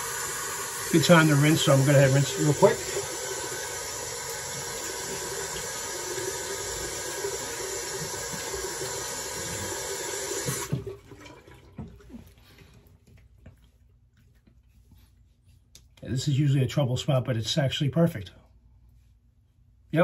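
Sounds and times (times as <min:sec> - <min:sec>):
faucet running: 0:00.0 - 0:11.9.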